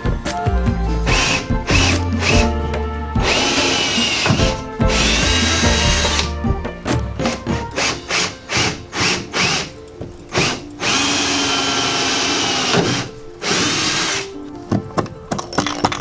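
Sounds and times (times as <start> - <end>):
power drill driving screws: 3.2 - 6.3, 7.6 - 14.3.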